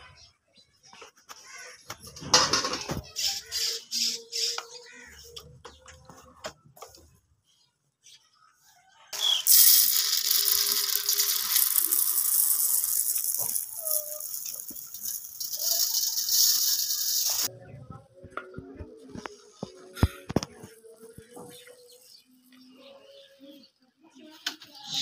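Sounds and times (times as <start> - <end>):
rice pouring into steel bowl: 9.2 - 17.5.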